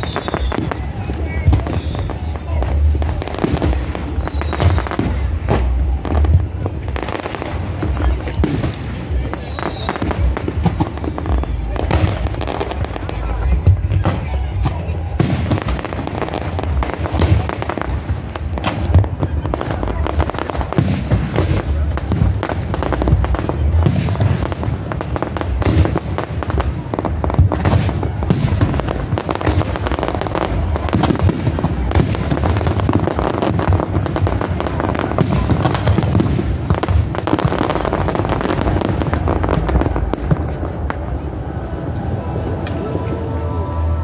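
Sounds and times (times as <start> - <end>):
fireworks crackling and banging: 0.0 - 44.0.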